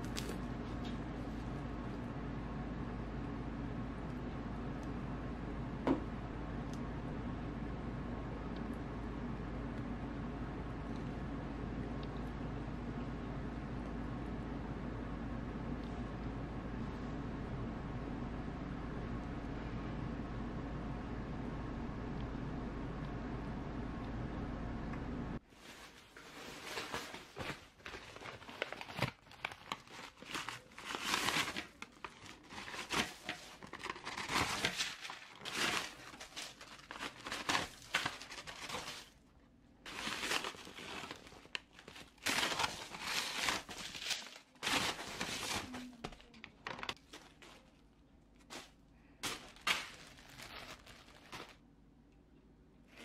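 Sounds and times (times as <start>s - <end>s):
paper wrapping crinkling: 0.0s - 1.4s, 25.5s - 39.2s, 39.9s - 51.6s.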